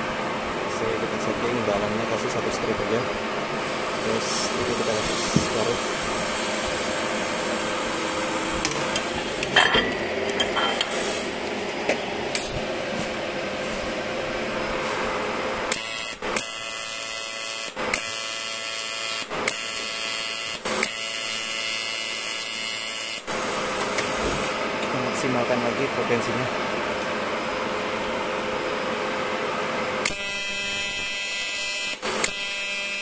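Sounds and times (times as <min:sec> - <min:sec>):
welder electric buzz: 0:00.0 - 0:33.0.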